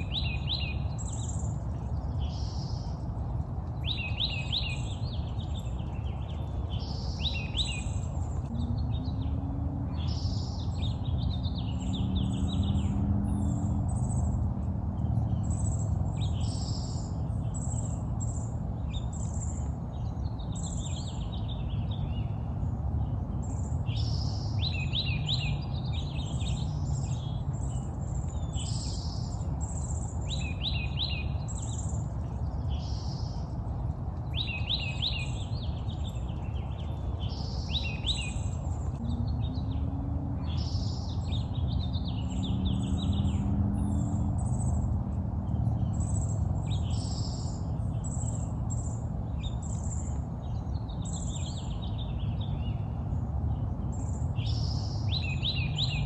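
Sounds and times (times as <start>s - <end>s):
songbirds singing: 0.0s - 56.0s
steady low rumble: 5.0s - 19.8s, 35.4s - 50.8s.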